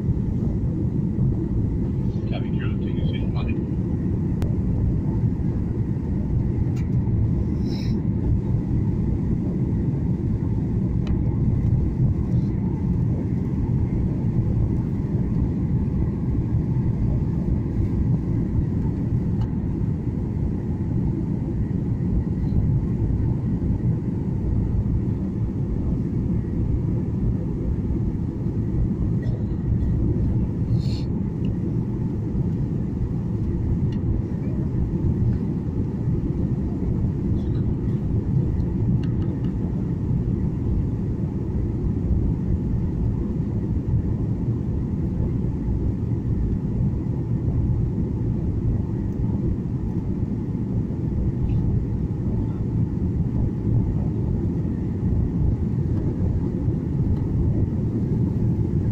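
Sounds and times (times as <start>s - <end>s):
airliner cabin rumble: 0.0s - 58.9s.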